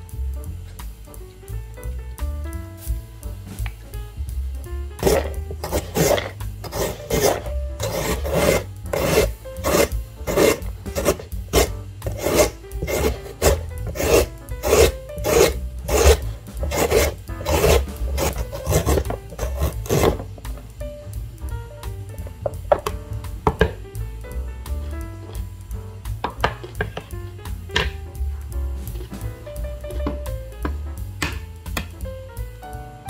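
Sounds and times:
carrot rasping on shredder blades: 5.0 - 20.2.

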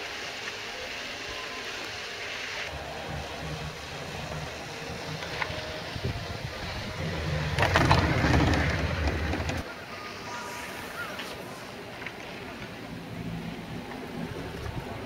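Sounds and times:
chairlift clattering over wheels: 2.7 - 9.7
chairlift low rumble: 2.7 - 15.0.

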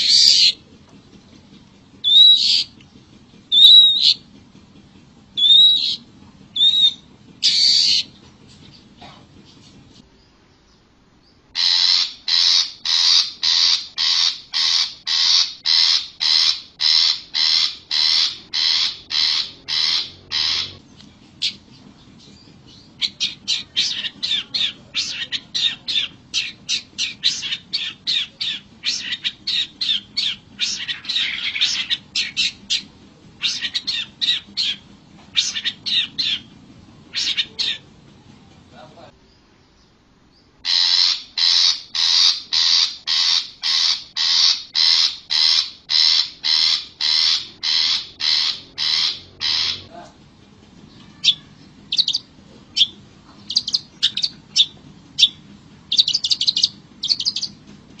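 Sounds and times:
bird giving harsh calls: 0.0 - 0.6, 2.0 - 2.8, 3.5 - 4.2, 5.4 - 8.2, 11.5 - 21.7, 22.7 - 36.5, 37.1 - 37.9, 40.6 - 50.1, 50.9 - 57.6.

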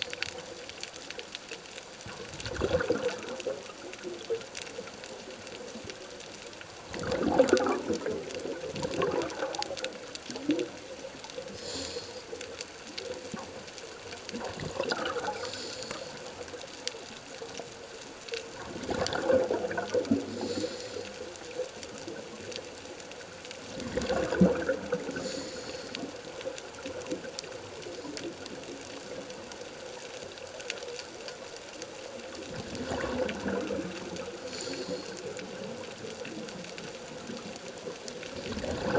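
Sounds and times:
exhaled bubbles underwater: 2.0 - 12.1, 12.7 - 38.9
regulator hiss: 11.4 - 12.6, 15.4 - 16.4, 20.3 - 21.4, 25.1 - 26.2, 34.4 - 35.3.

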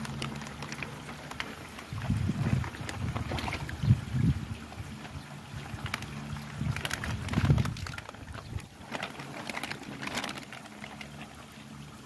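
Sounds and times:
plastic bag rustling: 0.0 - 11.6
water sloshing: 0.0 - 12.0
wind rumbling on microphone: 1.4 - 10.5.

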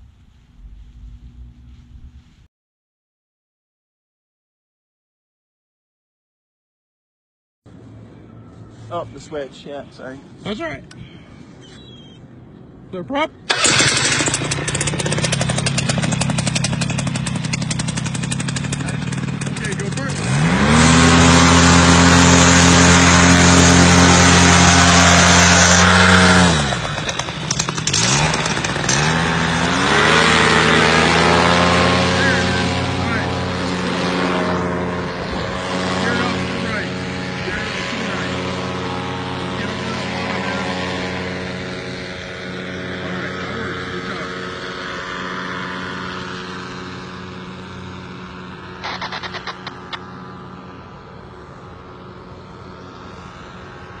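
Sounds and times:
paramotor engine revving: 13.5 - 54.0
sharp clicks: 48.8 - 50.0.

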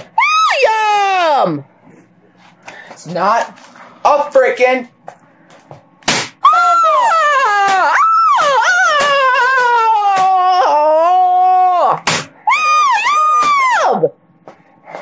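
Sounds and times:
teenage boy screaming: 0.2 - 1.6, 6.4 - 14.1.

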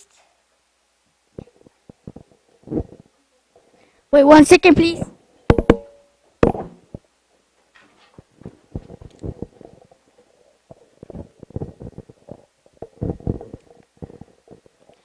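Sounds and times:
microphone handling thumps: 1.4 - 3.0, 6.4 - 7.0, 8.2 - 9.8, 11.0 - 14.3.

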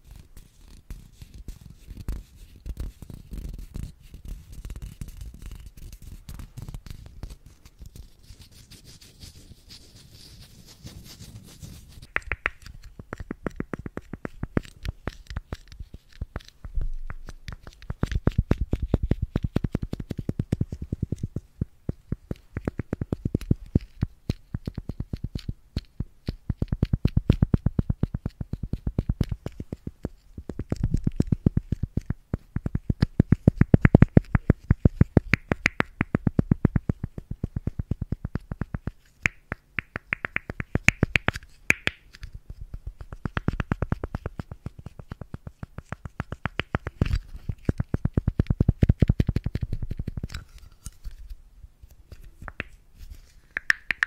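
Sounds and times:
container lid clicking: 53.5 - 54.0.

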